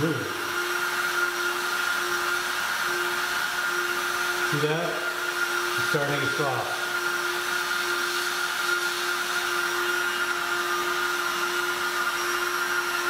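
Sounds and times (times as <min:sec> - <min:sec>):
heat gun whirring: 0:00.0 - 0:13.0.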